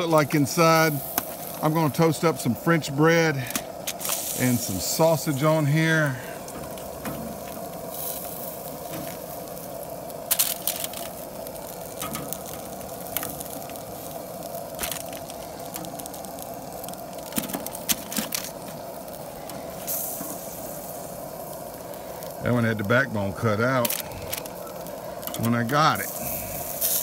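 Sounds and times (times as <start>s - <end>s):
foil crinkling: 0.0s - 27.0s
metal tongs clacking on grill grate: 11.8s - 13.6s, 25.2s - 25.5s.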